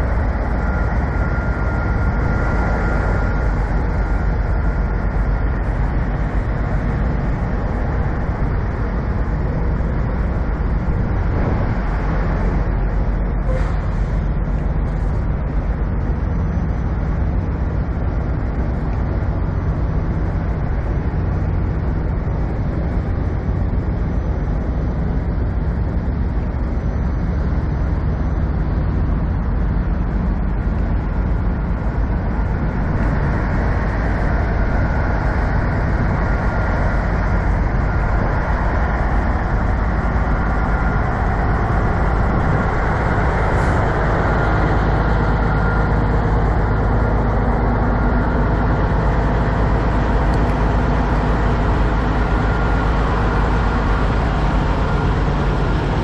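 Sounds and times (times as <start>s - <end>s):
diesel truck engine idling: 28.5s - 56.0s.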